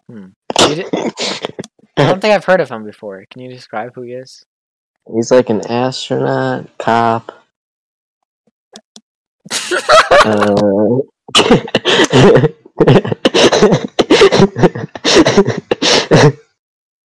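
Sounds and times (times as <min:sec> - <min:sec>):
boy laughing: 0:09.5 - 0:16.4.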